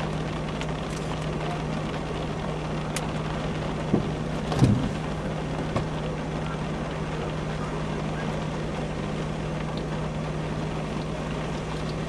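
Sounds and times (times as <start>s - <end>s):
vehicle cabin rumble: 0.0s - 12.0s
vehicle bump: 3.8s - 6.1s.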